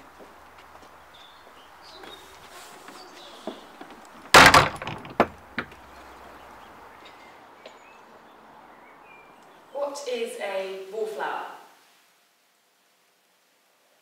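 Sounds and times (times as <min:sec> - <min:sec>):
small knocks: 0:02.9 - 0:06.0
wooden door banging shut: 0:04.2 - 0:05.8.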